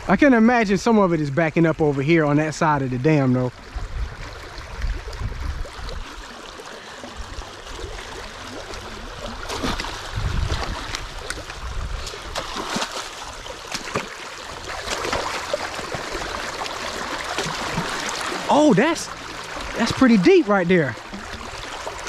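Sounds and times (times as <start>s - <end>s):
water rushing and gurgling: 0.0s - 22.0s
rake splashing in water: 8.5s - 22.0s.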